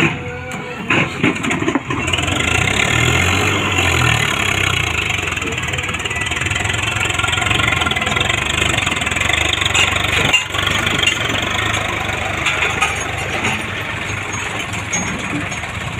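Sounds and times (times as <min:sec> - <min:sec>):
tractor diesel engine under load: 0:00.0 - 0:15.9.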